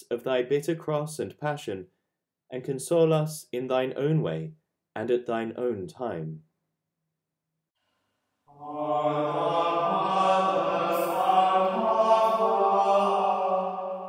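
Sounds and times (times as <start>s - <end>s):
voices singing a slow chant: 8.5s - 14.0s.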